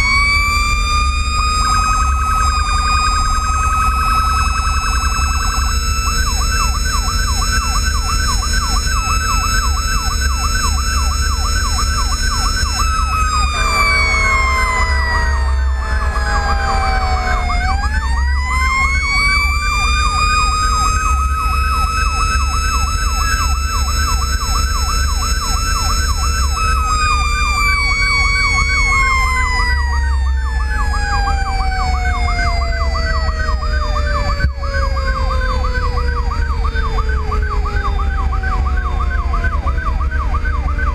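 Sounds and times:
truck engine and road noise: 0.0 - 27.8
electronic siren yelping: 0.0 - 40.9
mechanical siren winding: 0.0 - 40.9
air horn blast: 12.9 - 18.3.

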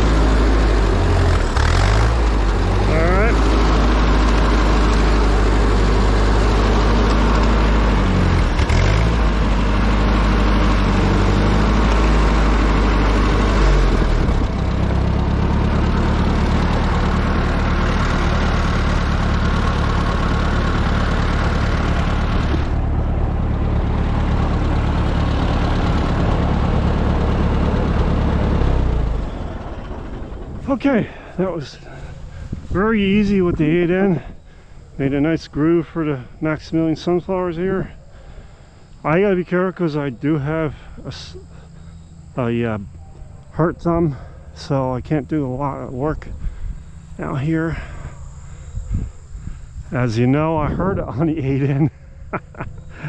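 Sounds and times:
plow cutting through soil: 0.0 - 33.7
tractor engine running: 0.0 - 53.0.

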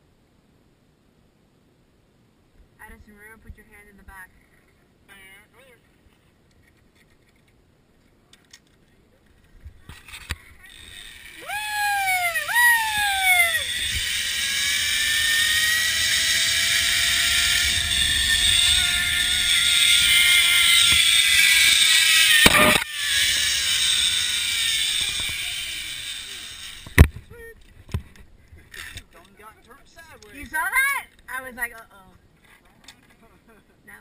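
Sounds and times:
zip line pulleys whining: 9.9 - 27.2.

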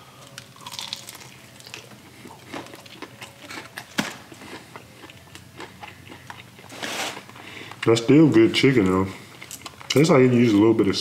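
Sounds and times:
crunchy chewing: 0.3 - 7.9.

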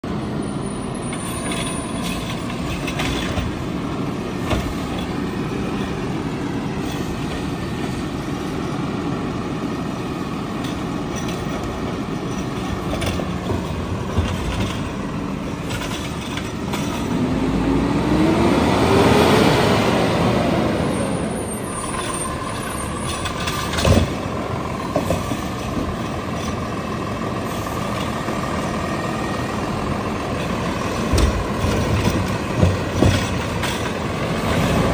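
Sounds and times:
garbage truck engine running: 0.0 - 18.9, 19.6 - 34.9.

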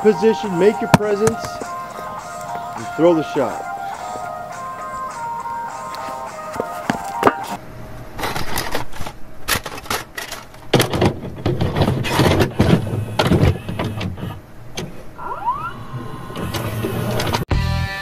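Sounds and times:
mechanical clicks and clunks: 9.5 - 15.0.

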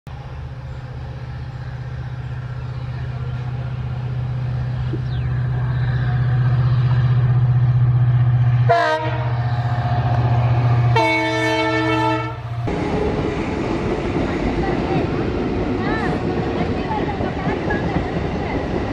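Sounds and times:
diesel locomotive engine running: 0.1 - 18.9
noisy rumble: 0.1 - 18.9
locomotive horn: 8.6 - 9.6, 10.9 - 13.1.

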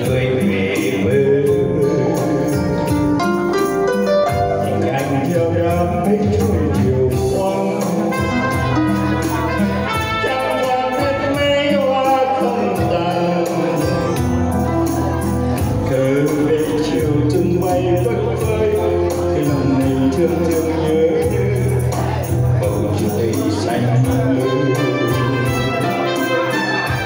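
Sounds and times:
acoustic guitar and band: 0.0 - 27.0
man singing into a microphone: 0.0 - 27.0.

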